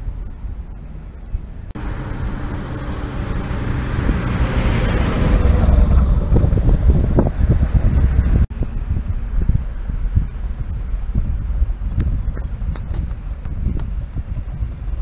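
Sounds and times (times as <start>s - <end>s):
car engine rumbling: 0.0s - 15.0s
motorhome driving past: 1.7s - 8.8s.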